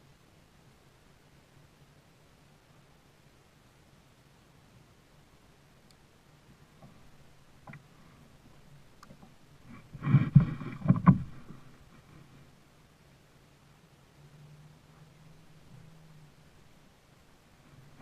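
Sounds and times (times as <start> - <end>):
faint low hum: 0.0 - 18.0
loud knocks and thumps: 9.8 - 11.6.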